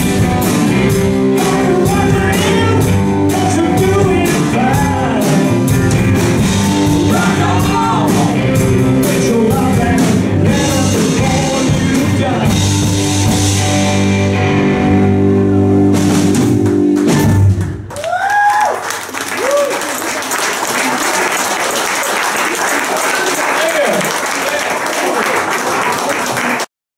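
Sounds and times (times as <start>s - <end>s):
drum hits: 0.0s - 13.8s, 15.9s - 17.9s
live rock band playing: 0.0s - 17.9s
man singing: 1.2s - 13.2s.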